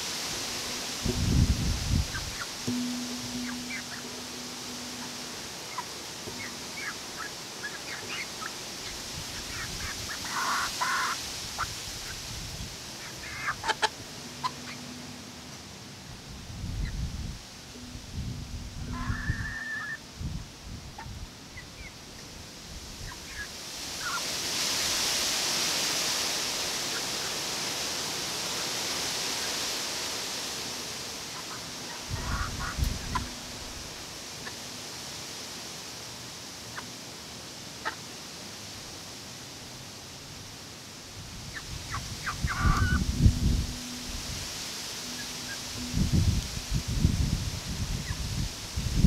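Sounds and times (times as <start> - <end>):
steady hiss: 0.0 - 49.0
hens chirping: 1.6 - 12.2, 13.0 - 15.3, 18.8 - 20.0, 31.3 - 33.8, 41.5 - 44.0, 45.0 - 46.4
low hum: 14.0 - 19.3.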